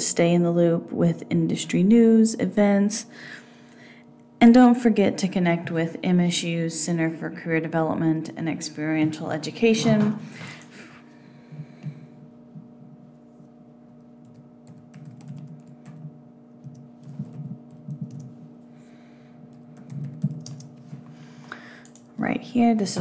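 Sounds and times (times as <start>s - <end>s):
low hum: 6.8s - 23.0s.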